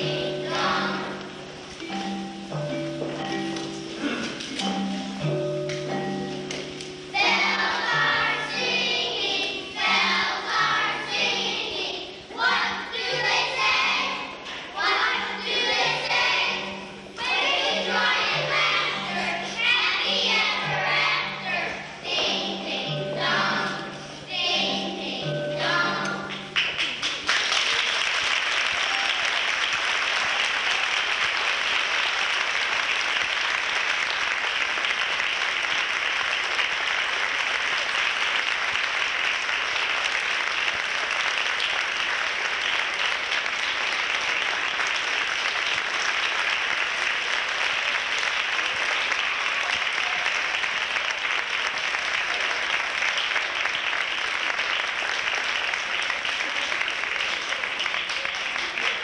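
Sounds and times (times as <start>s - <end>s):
children's chorus singing: 0.0s - 2.2s, 7.0s - 26.6s
audience applause: 26.3s - 59.0s.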